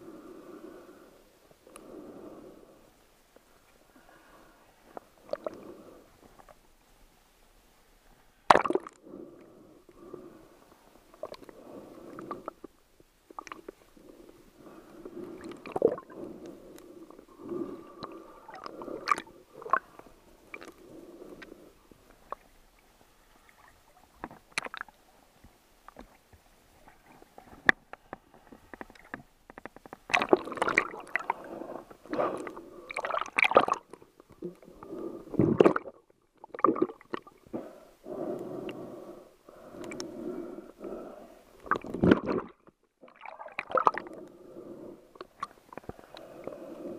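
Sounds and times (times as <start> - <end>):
muffled water sloshing and gurgling: 30.0 - 37.5, 41.6 - 46.9.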